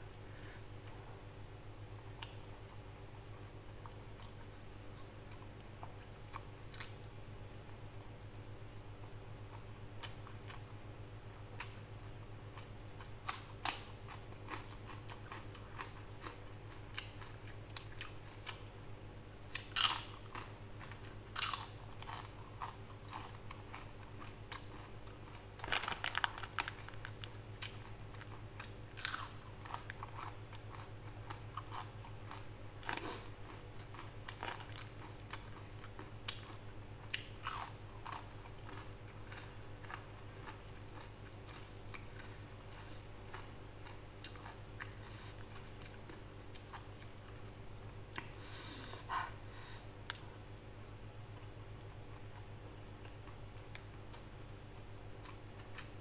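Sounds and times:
crunchy bites and chewing: 11.4 - 47.5.

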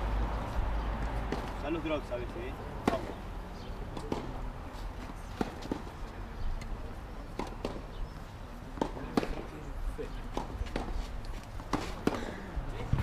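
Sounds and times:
tennis ball bounces: 2.8 - 3.2, 3.8 - 4.4, 5.0 - 6.0, 6.6 - 8.0, 8.6 - 9.5, 10.2 - 13.0
footsteps on clay court: 3.8 - 13.0.

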